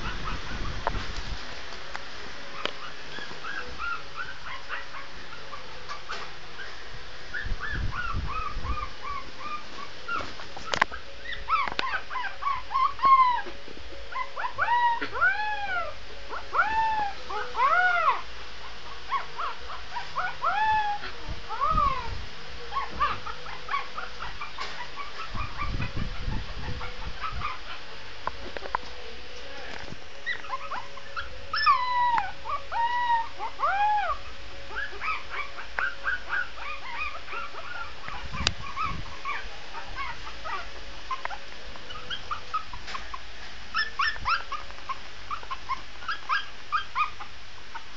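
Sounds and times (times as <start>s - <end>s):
puppy howling: 7.3s - 18.3s, 19.1s - 22.1s, 22.7s - 27.8s, 30.2s - 43.0s, 43.7s - 47.9s.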